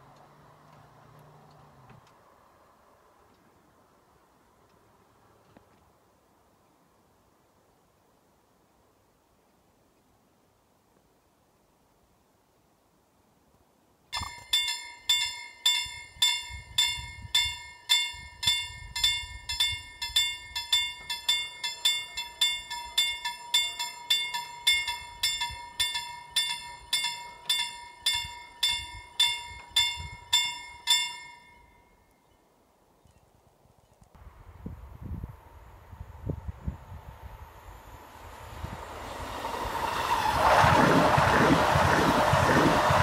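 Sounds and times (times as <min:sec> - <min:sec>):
steady high tone: 0:14.2 - 0:14.6
level crossing bell ringing: 0:14.2 - 0:32.1.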